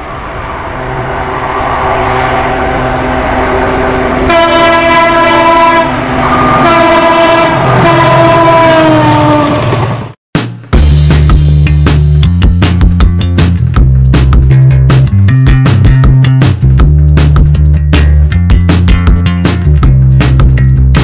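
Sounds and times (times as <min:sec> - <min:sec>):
diesel locomotive passing: 0:00.0 - 0:10.2
locomotive air horn: 0:02.0 - 0:09.7.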